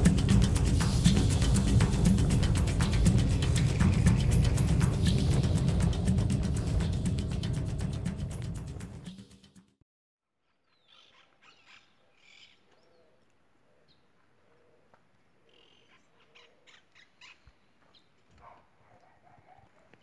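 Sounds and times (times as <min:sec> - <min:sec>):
faint birds chirping: 0:10.5 - 0:20.0.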